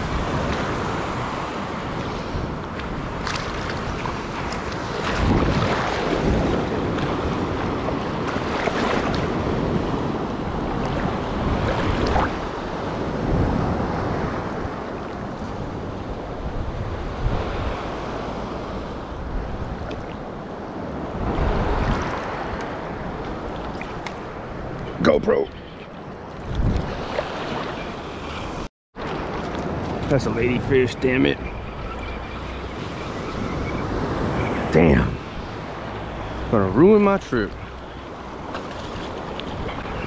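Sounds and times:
wind buffeting microphone: 0.0s - 40.0s
water sloshing and lapping: 2.0s - 12.5s, 19.7s - 20.3s, 21.6s - 24.9s, 25.5s - 30.3s, 35.2s - 40.0s.

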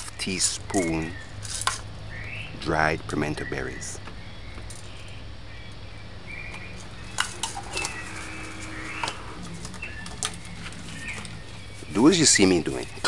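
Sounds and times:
birds calling: 0.0s - 13.0s.

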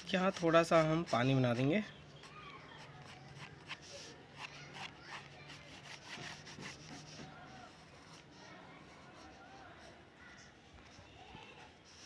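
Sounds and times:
drawing tool scratching on paper: 0.0s - 1.7s, 2.8s - 10.0s.

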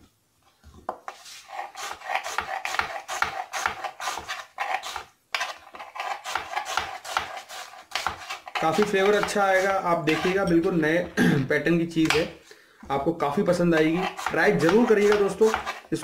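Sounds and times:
knife slicing onion on board: 1.0s - 10.8s, 13.8s - 16.0s.

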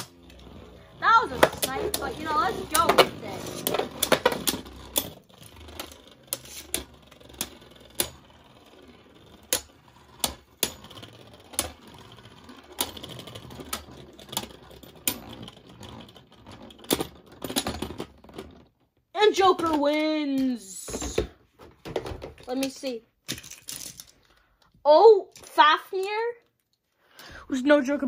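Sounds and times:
spinning tops whirring: 0.0s - 17.1s.

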